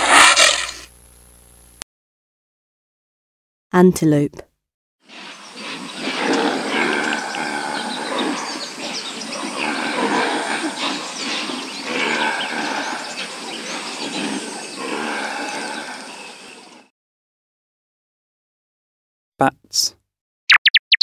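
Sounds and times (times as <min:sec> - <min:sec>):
antelope calling: 0:05.1 - 0:16.6.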